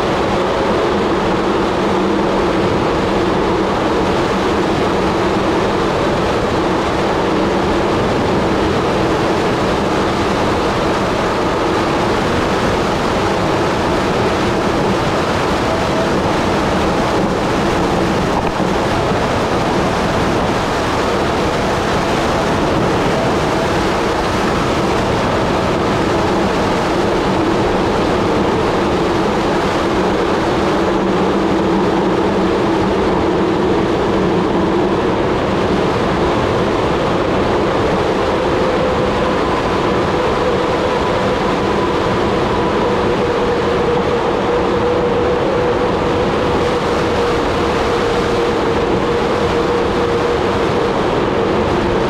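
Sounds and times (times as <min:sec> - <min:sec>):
bicycle tyre rumble on asphalt: 0:00.0 - 0:52.0
wind on microphone: 0:00.0 - 0:52.0.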